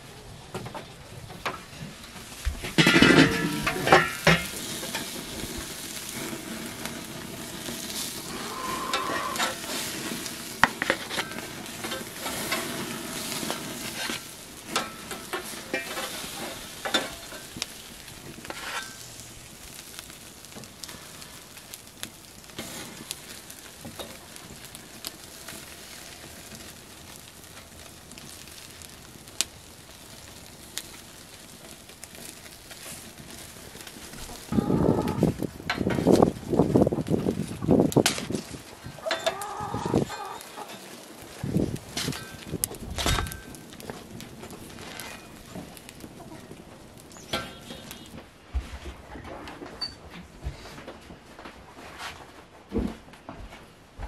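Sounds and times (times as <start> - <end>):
burgers sizzling on a grill: 0.9 - 48.2
metal spatula scraping grate: 2.8 - 5.2, 7.6 - 17.5, 18.4 - 19.1, 44.7 - 45.4.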